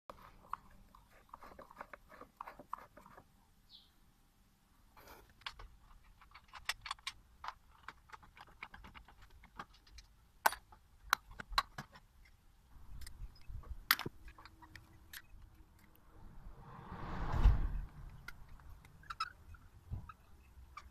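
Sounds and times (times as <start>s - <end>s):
metallic clicks and taps: 13.0s - 16.0s.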